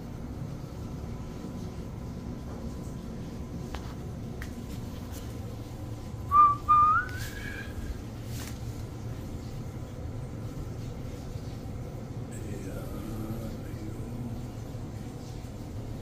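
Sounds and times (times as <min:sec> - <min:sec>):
low steady hum: 0:00.0 - 0:16.0
whistle with upward slide: 0:06.3 - 0:07.4.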